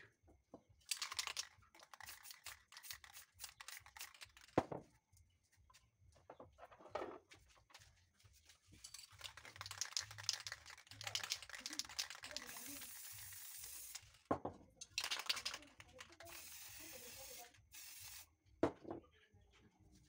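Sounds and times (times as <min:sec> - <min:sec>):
spray can hissing: 0:00.9 - 0:04.6, 0:09.2 - 0:14.2, 0:15.0 - 0:18.3.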